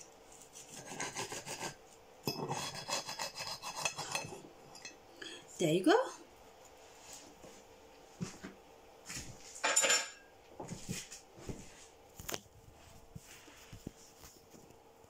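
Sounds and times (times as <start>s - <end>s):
cutlery scraping a plate: 0.8s - 5.0s, 9.6s - 10.3s.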